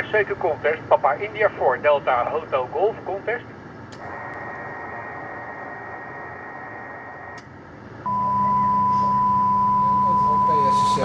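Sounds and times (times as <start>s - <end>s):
radio band hiss: 0.0s - 3.4s
low hum: 0.0s - 11.0s
faint steady whistle: 8.1s - 11.0s
loud whistle-like tone: 8.1s - 11.0s.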